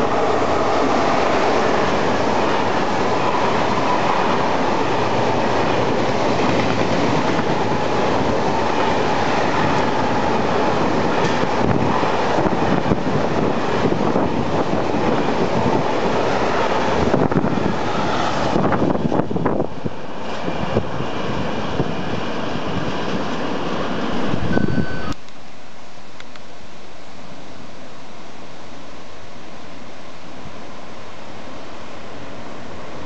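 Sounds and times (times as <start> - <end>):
train wheels rumbling on rail: 0.0 - 25.0
train wheels clicking: 5.6 - 10.0, 11.1 - 11.9.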